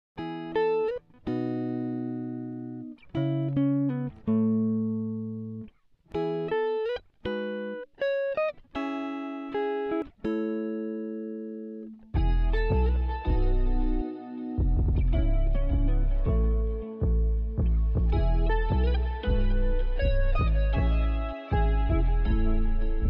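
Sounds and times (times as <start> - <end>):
plucked string melody: 0.2 - 23.0
music track with heavy bass: 12.2 - 23.0.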